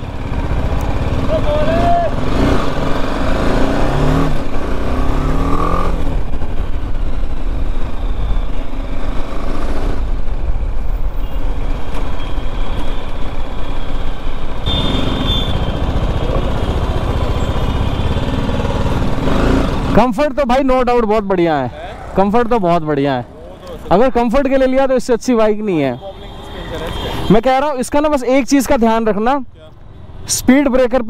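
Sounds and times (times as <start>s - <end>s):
motorcycle engine running: 0.0s - 11.0s, 13.3s - 20.3s.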